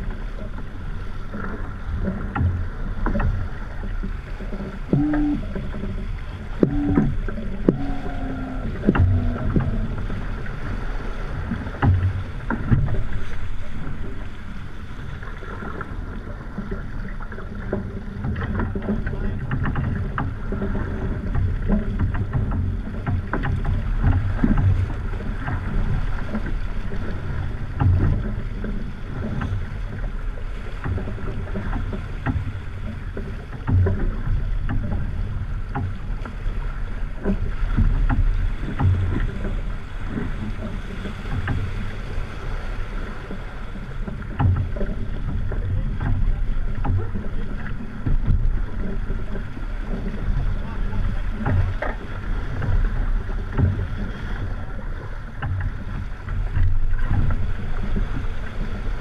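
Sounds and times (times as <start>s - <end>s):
water rushing along hull: 0.0s - 59.0s
wind buffeting microphone: 0.0s - 59.0s
thumps and knocks: 2.0s - 10.6s, 11.4s - 14.3s, 17.6s - 26.6s, 30.8s - 36.4s, 37.2s - 41.9s, 44.0s - 52.0s.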